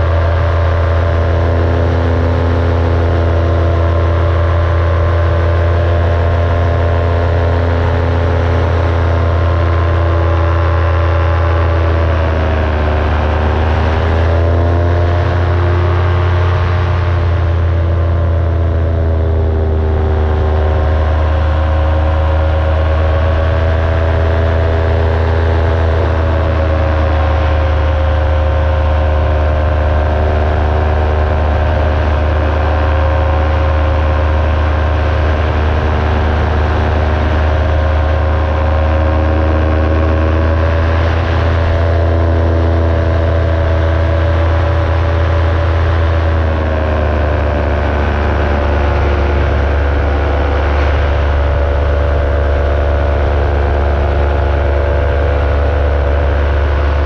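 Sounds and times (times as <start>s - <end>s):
ultralight aircraft engine droning: 0.0s - 57.0s
wind rushing past microphone: 0.0s - 57.0s.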